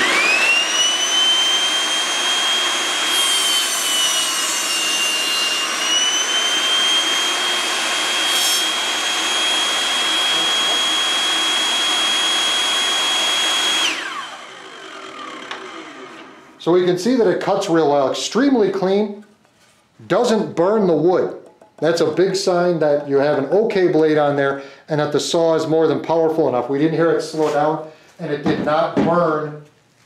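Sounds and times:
saw cutting wood: 0.0 - 16.6
table saw whining: 0.0 - 18.5.

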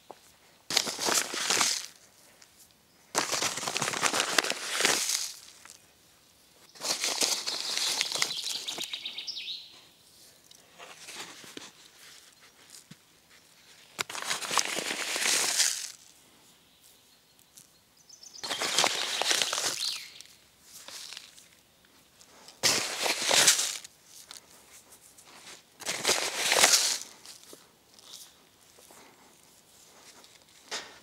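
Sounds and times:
plastic bag rustling and crinkling: 0.7 - 2.0, 3.2 - 5.8, 6.8 - 8.9, 13.8 - 16.1, 18.4 - 21.6, 22.3 - 28.3.

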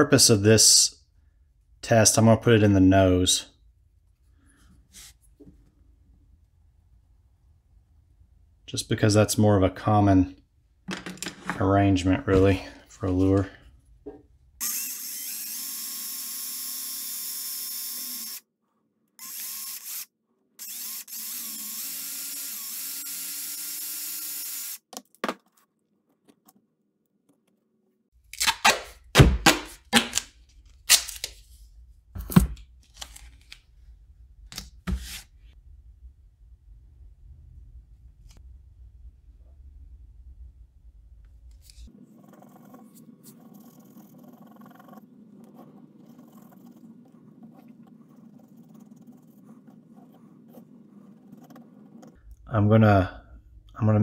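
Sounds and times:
objects clicking on workbench: 10.9 - 11.6
power drill running: 14.6 - 18.4, 19.2 - 24.8
low hum: 35.6 - 43.6.

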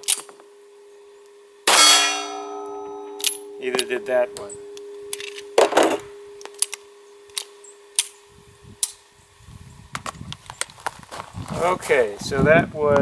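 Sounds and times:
loud metallic pistol clack: 1.7 - 6.0.

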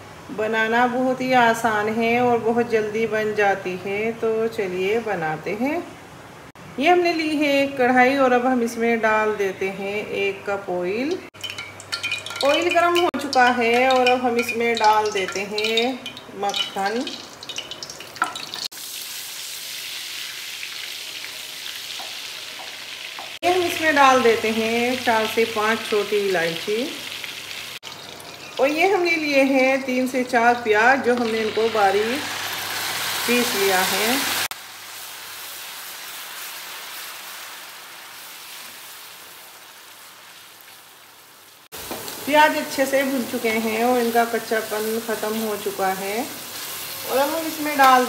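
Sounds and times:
butter sizzling in oil: 11.3 - 48.0.

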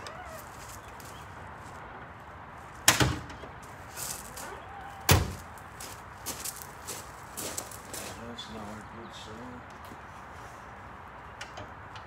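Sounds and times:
door slamming shut: 5.1 - 5.4.

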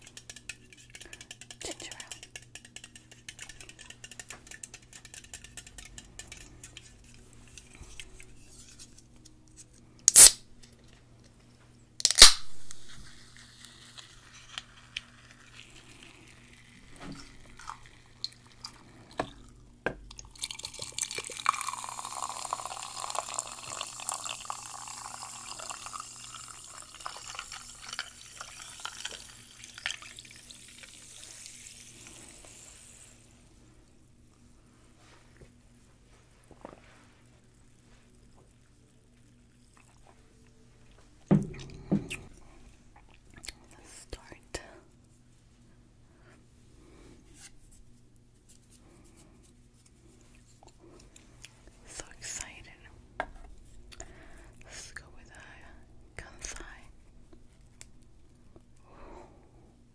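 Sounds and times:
can opening crack: 10.1 - 10.5, 12.0 - 15.6
soda pouring into mug: 15.5 - 19.4, 20.2 - 33.2
fizz hissing: 20.5 - 33.3.

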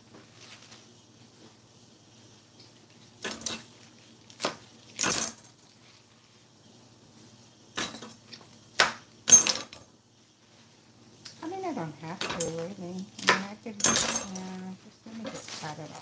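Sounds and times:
leaves crackling on cutting board: 0.1 - 1.5.

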